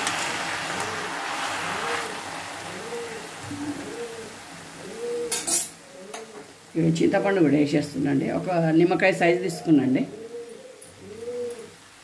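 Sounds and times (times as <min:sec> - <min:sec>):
leaves sizzling in a pan: 0:00.0 - 0:10.4
faint low hoot: 0:02.7 - 0:05.4, 0:10.1 - 0:11.8.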